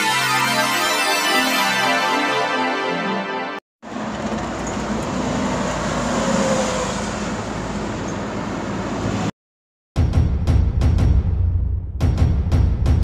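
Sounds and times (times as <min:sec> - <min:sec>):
vehicle rumble and roar: 0:03.8 - 0:09.4.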